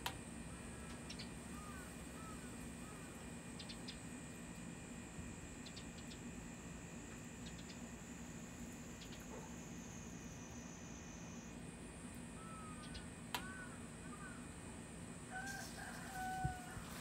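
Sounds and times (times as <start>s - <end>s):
steady low hum: 0.0s - 17.0s
soft arching calls: 0.5s - 4.1s, 12.3s - 14.7s.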